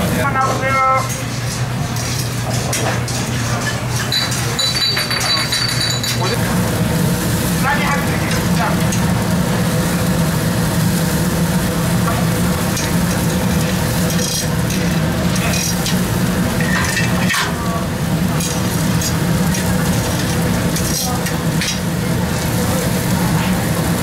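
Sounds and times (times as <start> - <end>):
food sizzling on grill: 0.0 - 24.0
utensils and dishes clinking: 0.4 - 6.4, 13.6 - 23.7.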